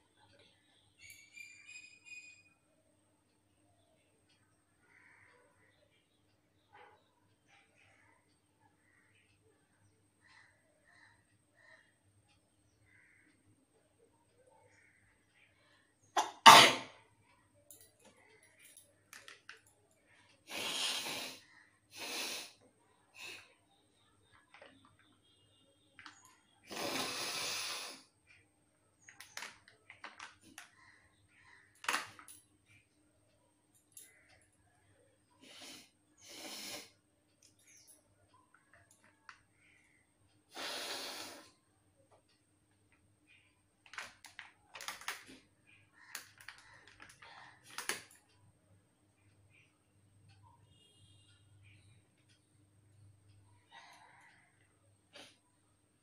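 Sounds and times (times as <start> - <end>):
woman blowing her nose: 20.5 - 21.4, 26.7 - 28.0, 40.6 - 41.5.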